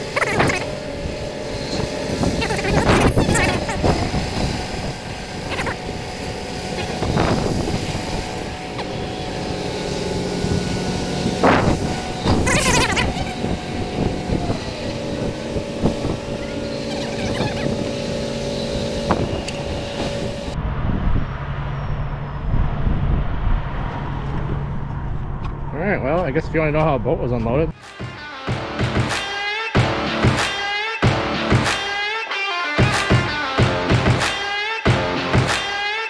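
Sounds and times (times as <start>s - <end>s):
heavy vehicle engine running: 0.0s - 27.0s.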